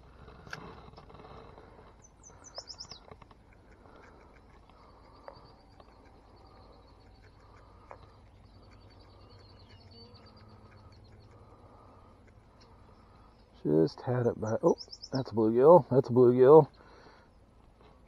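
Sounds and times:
distant bird trilling: 1.0s - 15.8s
light ticks: 2.4s - 12.8s.

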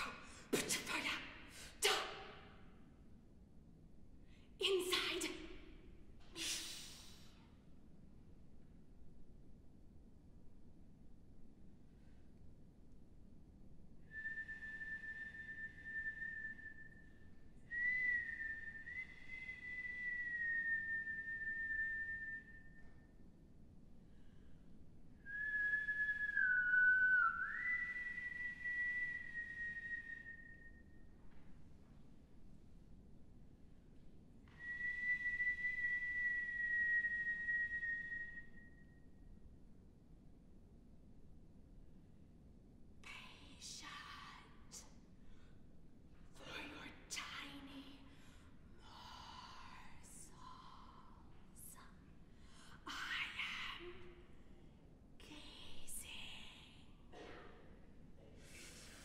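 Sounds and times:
woman whistling long notes: 14.0s - 23.2s, 25.2s - 31.2s, 34.5s - 39.2s.

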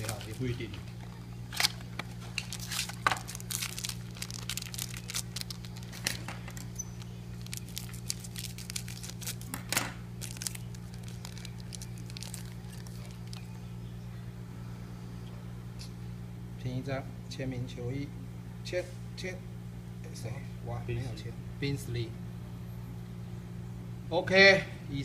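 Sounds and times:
foil pack crinkling: 0.0s - 13.6s
low steady hum: 0.0s - 25.0s.

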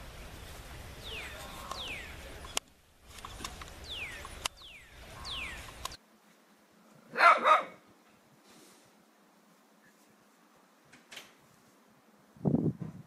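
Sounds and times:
small dog barking: 7.1s - 7.8s.

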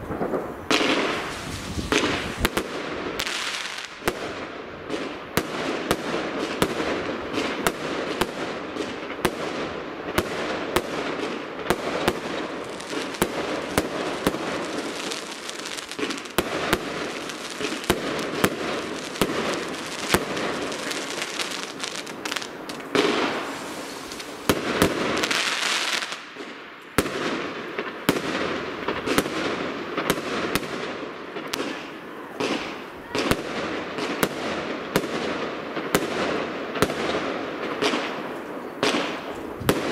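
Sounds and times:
fireworks hissing: 0.0s - 4.3s, 10.2s - 26.6s
fireworks crackling: 0.0s - 39.9s.

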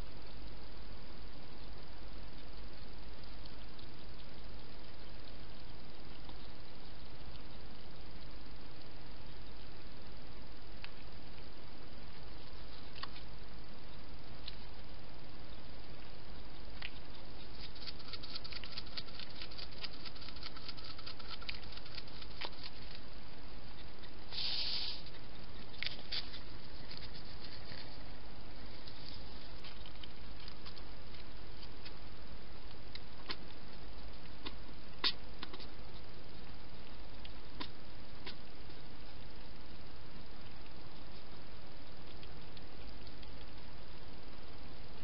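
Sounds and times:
hedgehog crunching food: 1.6s - 9.7s, 14.4s - 39.5s, 40.3s - 44.1s
camera hiss: 24.3s - 28.0s.

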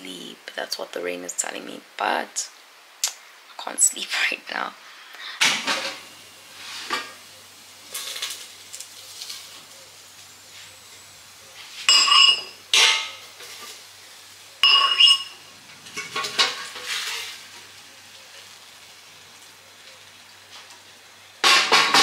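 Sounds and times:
cookware clinks and scrapes: 11.8s - 13.8s, 14.6s - 15.4s
ringing metal clanks: 11.9s - 13.0s, 14.6s - 15.4s.

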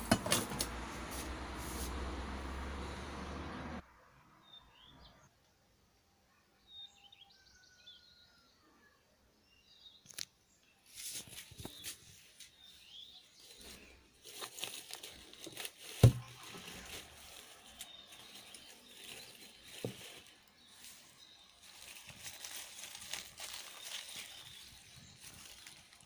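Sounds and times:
light rustling handling noise: 10.9s - 26.0s.

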